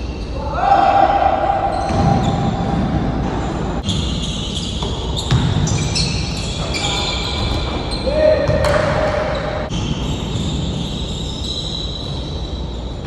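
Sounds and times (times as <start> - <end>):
shoe squeaks: 1.7 - 2.6, 3.4 - 8.6, 9.3 - 13.0
basketball bouncing on court: 1.8 - 4.0, 4.7 - 10.6.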